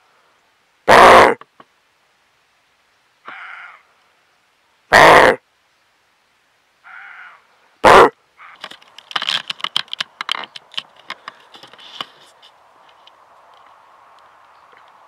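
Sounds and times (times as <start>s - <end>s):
faint background hiss: 0.0s - 15.0s
sharp clicks and rustles: 8.6s - 15.0s.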